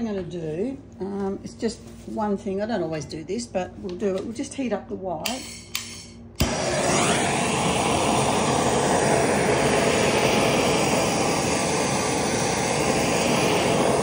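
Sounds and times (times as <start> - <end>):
heat gun blowing hot air: 5.8 - 14.0.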